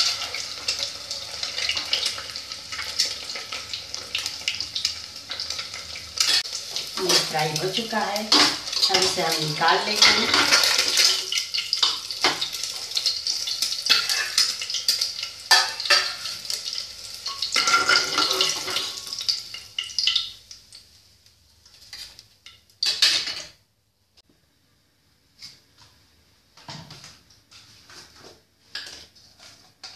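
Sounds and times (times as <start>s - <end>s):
hot oil sizzling: 0.0s - 23.6s.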